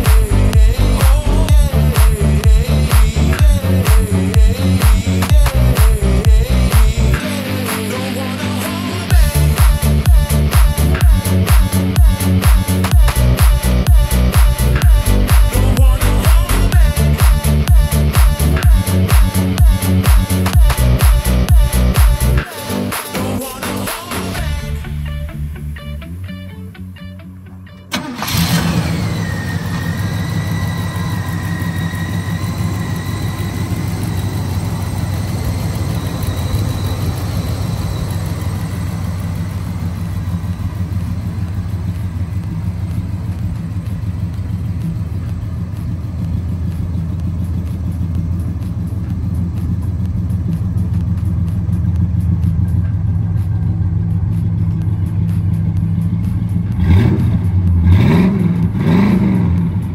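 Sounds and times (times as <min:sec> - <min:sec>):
car engine idling and revving: 0:00.0 - 0:59.9
faint high whine: 0:28.0 - 0:50.8.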